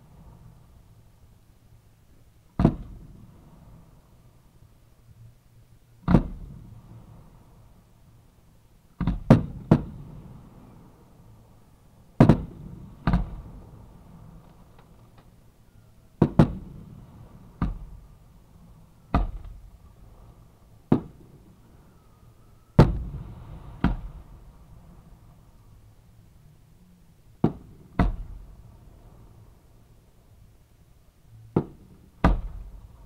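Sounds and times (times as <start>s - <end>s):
fireworks bangs with echo: 9.0s - 10.1s, 12.2s - 13.6s, 16.2s - 17.0s, 20.9s - 21.5s, 22.8s - 24.3s, 31.5s - 32.8s.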